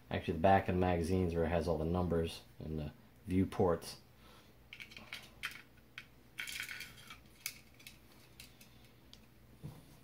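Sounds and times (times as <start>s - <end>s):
magazine parts clicking and rattling: 4.7s - 9.3s.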